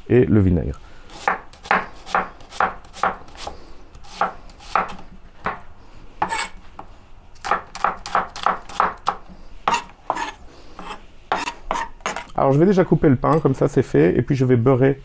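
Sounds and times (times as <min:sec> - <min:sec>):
knife chopping onions on a board: 0:01.2 - 0:05.6, 0:06.2 - 0:06.5, 0:07.4 - 0:12.3.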